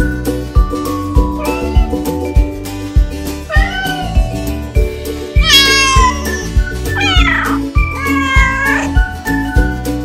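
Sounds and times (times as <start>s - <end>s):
background music with beat: 0.0s - 10.0s
cat meowing: 1.4s - 1.9s, 3.5s - 4.2s, 5.4s - 9.1s.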